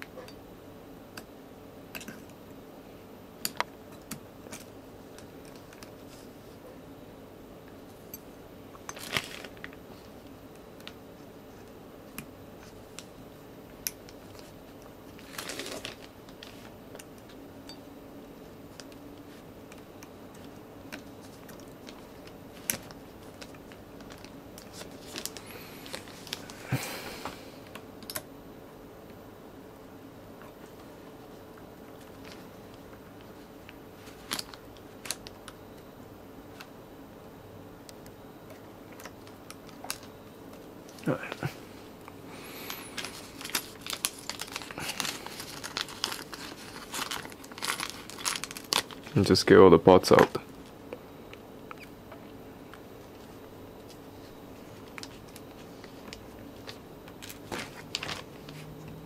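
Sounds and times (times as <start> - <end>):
faint steady hum: 0.0 - 59.0
plastic bag crinkling: 9.0 - 9.7, 15.2 - 16.7, 21.8 - 26.8, 42.4 - 49.4, 54.8 - 58.7.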